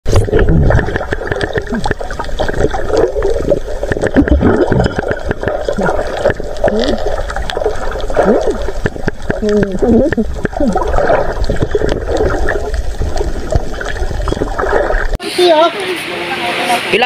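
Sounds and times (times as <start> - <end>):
underwater seawater and bubbles: 0.0 - 15.2
gurgles sliding in pitch: 0.1 - 15.2
small underwater clicks: 0.9 - 15.2.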